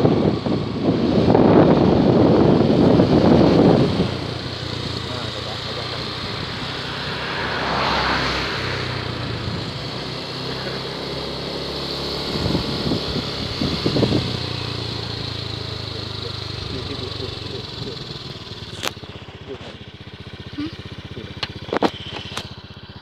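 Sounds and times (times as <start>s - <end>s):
small engine running: 0.0s - 23.0s.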